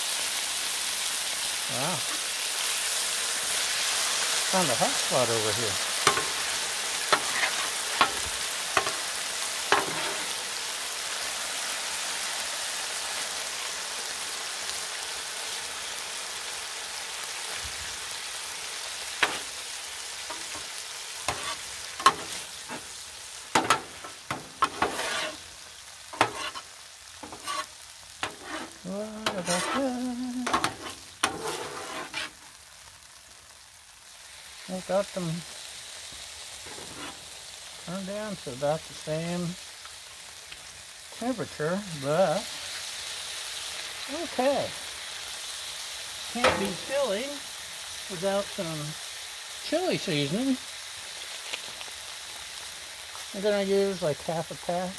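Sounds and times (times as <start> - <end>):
food sizzling on a griddle: 0.0 - 54.9
metal spatula scraping a griddle: 6.0 - 10.4, 19.2 - 19.6, 20.2 - 25.5, 26.1 - 32.5, 36.6 - 37.4, 46.4 - 47.2.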